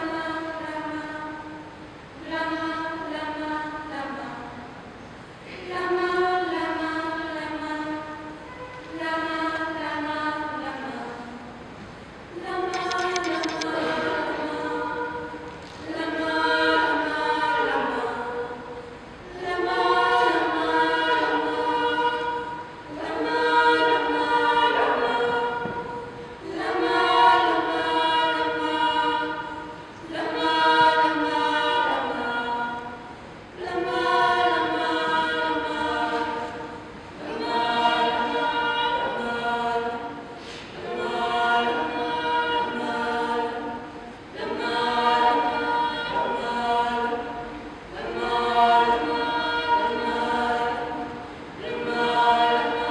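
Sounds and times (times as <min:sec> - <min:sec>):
women singing unaccompanied: 0:00.0 - 0:11.7, 0:12.3 - 0:52.9.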